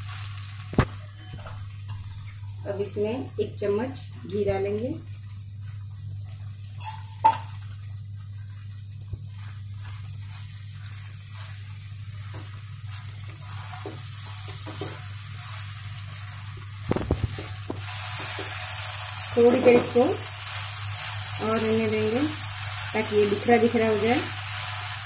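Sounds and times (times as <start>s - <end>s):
food sizzling in a pan: 0.0s - 25.0s
spatula stirring and scraping: 8.3s - 18.6s.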